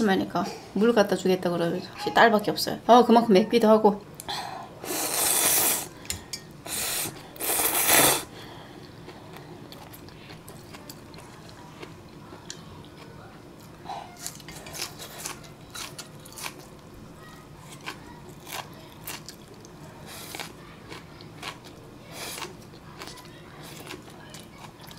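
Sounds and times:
noodles slurped: 4.9s - 5.9s, 6.7s - 8.3s
chewing: 8.8s - 24.9s.

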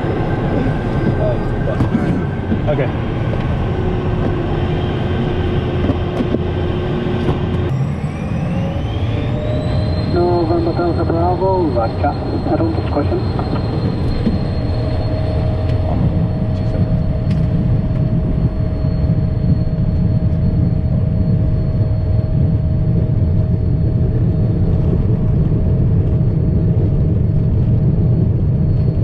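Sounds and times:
high whine: 0.0s - 29.0s
jet engine and runway rumble: 0.0s - 29.0s.

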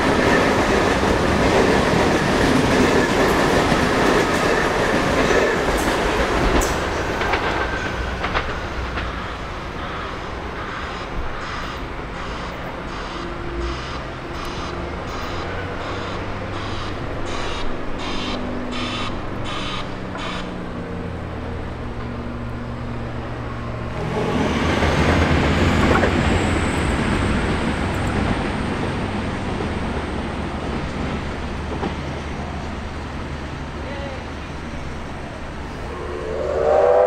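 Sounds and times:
steam locomotive moving: 0.0s - 20.9s, 23.3s - 37.0s
rush of steam: 35.6s - 37.0s.

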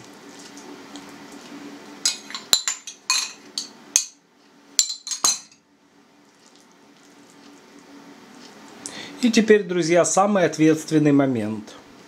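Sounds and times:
metal spoon clinking against bowl: 4.8s - 5.6s.

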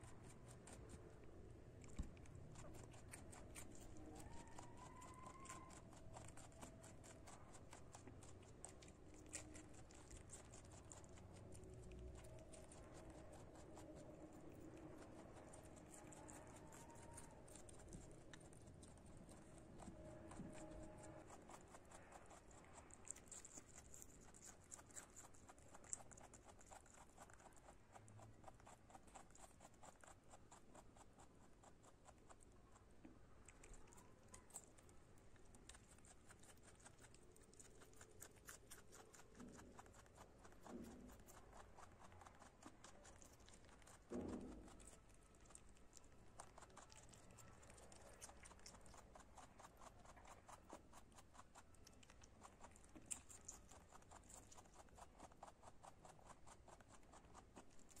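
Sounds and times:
rabbit chewing leaves: 0.0s - 58.0s.

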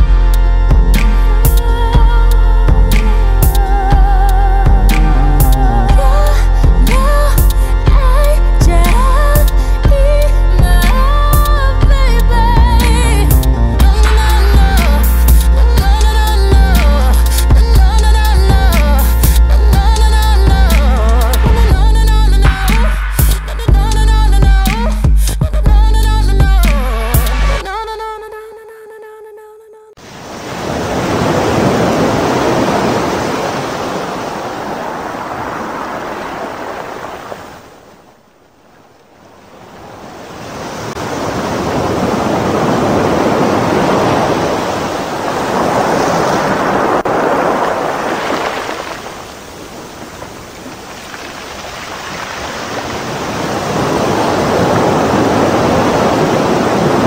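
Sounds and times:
ocean waves washing in: 30.0s - 57.0s.

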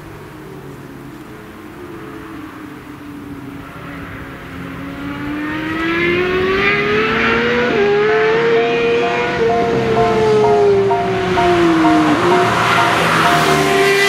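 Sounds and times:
motorcycle engine accelerating: 3.6s - 14.0s.

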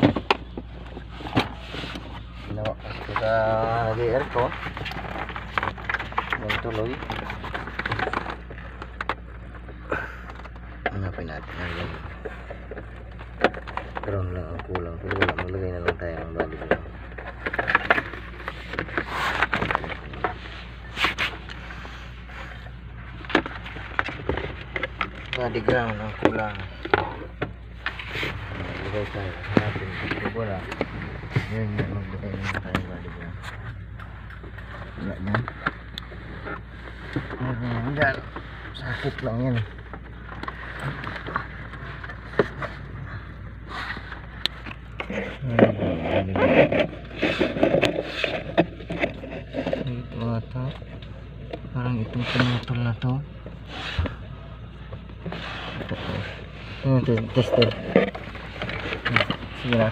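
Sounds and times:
rustling scrape: 0.0s - 9.8s, 16.6s - 50.2s, 52.0s - 52.8s, 53.6s - 54.3s, 55.1s - 59.9s
hands handling wires and connectors: 0.0s - 59.9s
steady low hum: 0.0s - 59.9s.

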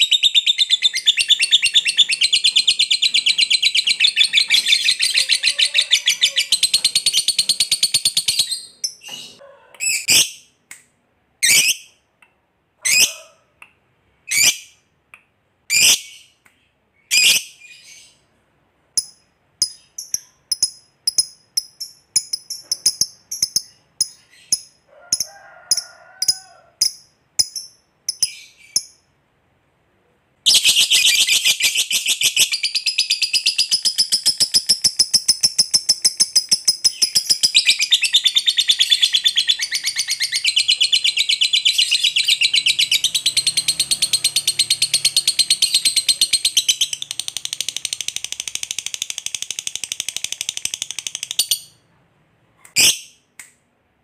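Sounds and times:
bird sharp high chirps: 0.0s - 10.5s, 30.5s - 49.2s.

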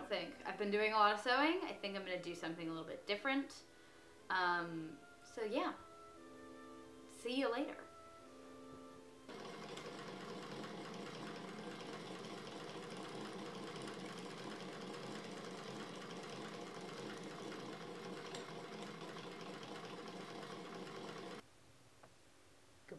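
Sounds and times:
sewing machine ticking: 9.3s - 21.4s.

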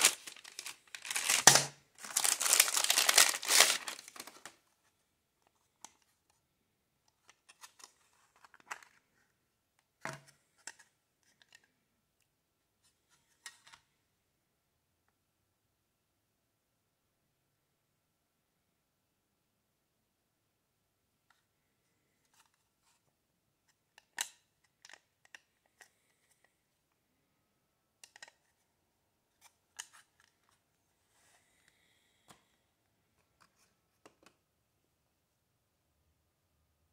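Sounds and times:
packaging clicks and rustles: 0.0s - 4.6s.

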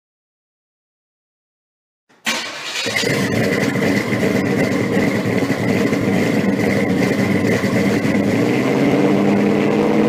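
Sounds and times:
car engine idling: 2.2s - 10.0s.

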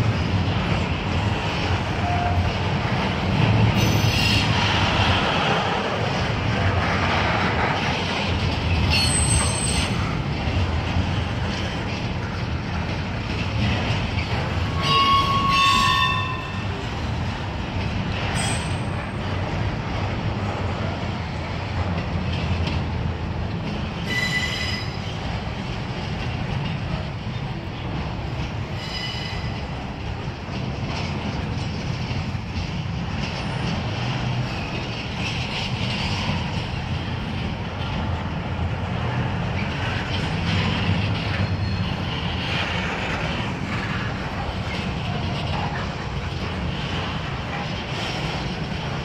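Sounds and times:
train wheels rumbling on rail: 0.0s - 49.0s
high-pitched wheel squeals: 8.9s - 10.0s, 14.7s - 16.8s, 24.1s - 25.0s, 28.8s - 29.6s.

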